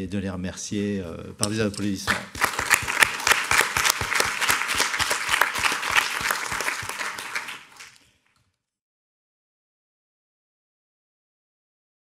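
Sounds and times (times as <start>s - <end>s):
audience applauding: 2.1s - 8.1s.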